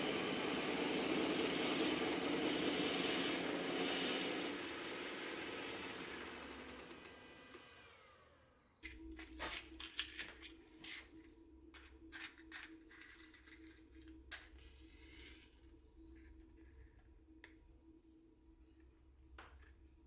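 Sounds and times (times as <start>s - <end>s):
belt grinder spinning down: 0.0s - 8.5s
faint low hum: 8.3s - 20.0s.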